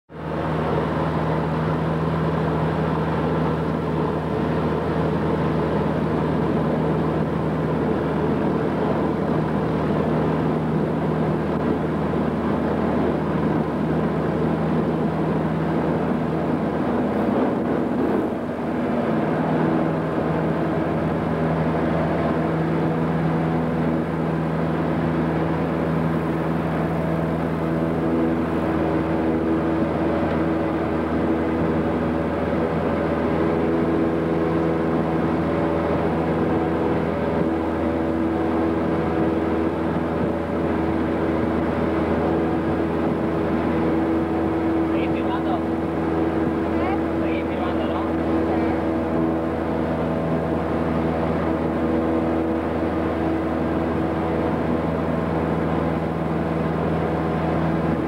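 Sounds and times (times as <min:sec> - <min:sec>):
airplane engine and propeller drone: 0:00.1 - 0:58.0.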